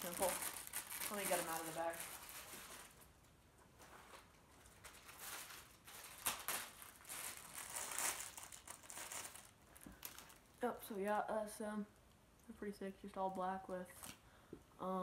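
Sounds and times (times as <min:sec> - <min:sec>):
bag crinkling and rustling: 0:00.0 - 0:10.6.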